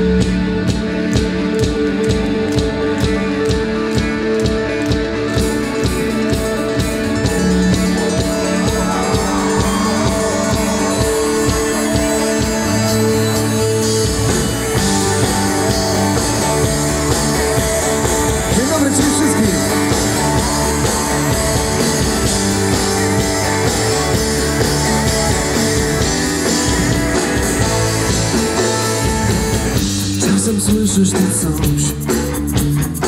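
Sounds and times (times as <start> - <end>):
pop-rock band playing: 0.0 - 33.0.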